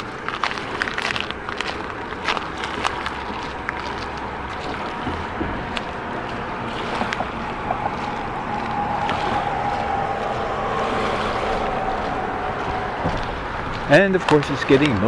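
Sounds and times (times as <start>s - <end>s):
background rumble: 0.0s - 15.0s
engine drone: 0.0s - 15.0s
humming tone: 4.2s - 13.9s.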